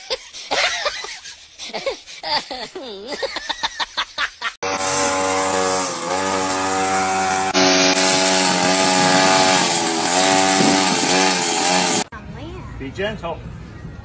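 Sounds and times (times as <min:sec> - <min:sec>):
string trimmer engine running: 0:04.6 - 0:12.1.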